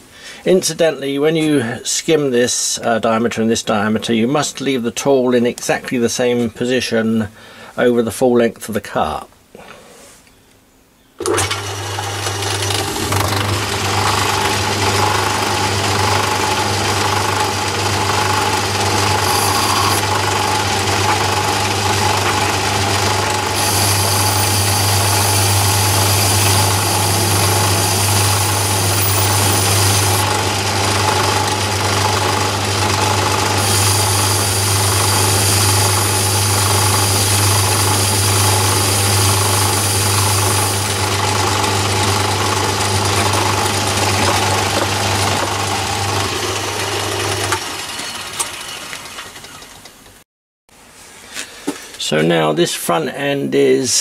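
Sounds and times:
lathe motor humming: 0:11.2 - 0:49.1
high hiss of cutting: 0:19.1 - 0:20.1, 0:23.4 - 0:30.3, 0:33.6 - 0:41.0.

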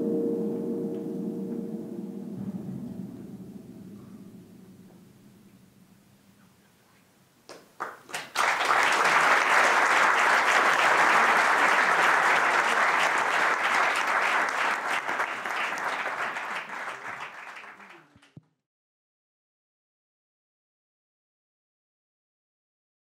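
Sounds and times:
audience applauding: 0:07.5 - 0:18.4.

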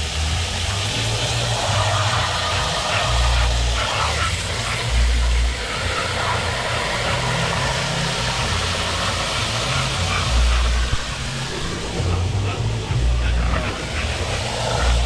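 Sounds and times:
bass-heavy music: 0:00.0 - 0:15.0
steady rushing noise: 0:00.0 - 0:15.0.

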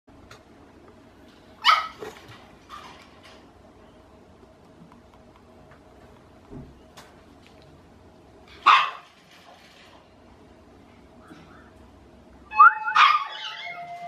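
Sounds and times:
puppy barking: 0:01.6 - 0:02.2, 0:08.6 - 0:09.1, 0:12.7 - 0:13.8.

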